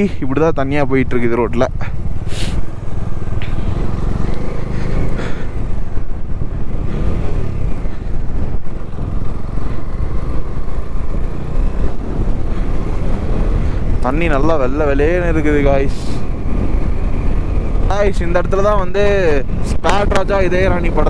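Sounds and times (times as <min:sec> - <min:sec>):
motorcycle engine running: 0:00.0 - 0:21.0
short hiss: 0:02.2 - 0:02.7.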